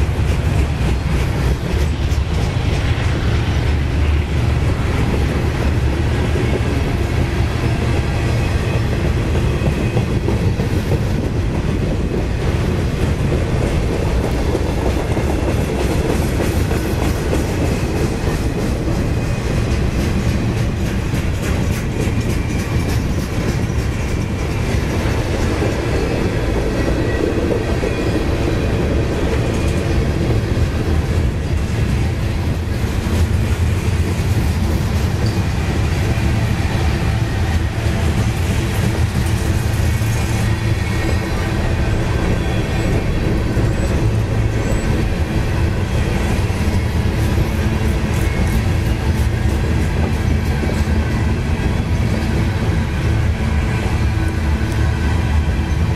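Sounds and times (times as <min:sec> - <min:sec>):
clickety-clack over rail joints: 0:00.0 - 0:55.9
train wheels rumbling on rails: 0:00.0 - 0:55.9.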